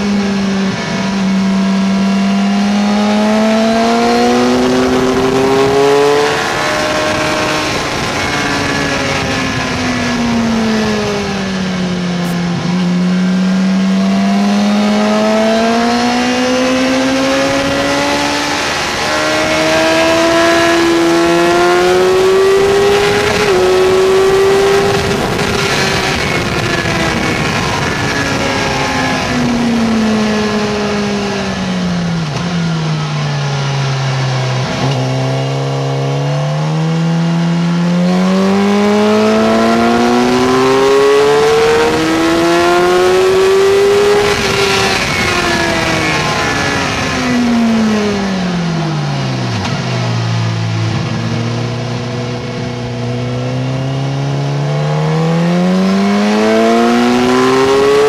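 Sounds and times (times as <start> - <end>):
motorcycle engine: 0.0 - 58.0
wind rush: 3.0 - 13.3, 14.0 - 33.1, 38.1 - 54.5.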